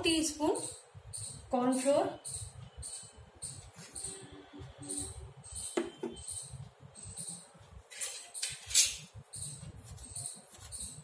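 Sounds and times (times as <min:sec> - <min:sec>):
faint high chirp: 0:00.0 - 0:11.0
spoon scraping ceramic plate: 0:07.9 - 0:09.1.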